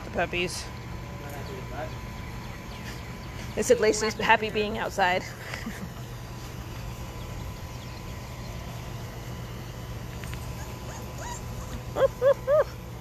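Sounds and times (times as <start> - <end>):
puppy whimpering: 10.5 - 12.8.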